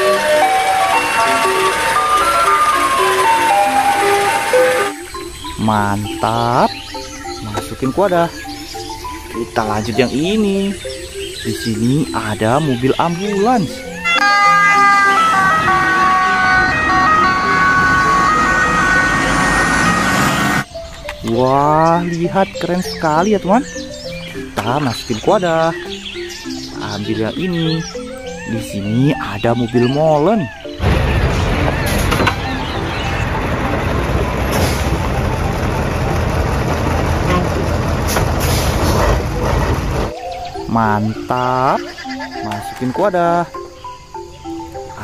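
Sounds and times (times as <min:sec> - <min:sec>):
diesel truck engine running: 0:00.0 - 0:05.2, 0:14.2 - 0:20.7, 0:30.8 - 0:40.2
two-tone ambulance siren: 0:00.0 - 0:05.2, 0:13.8 - 0:20.7, 0:30.4 - 0:36.1.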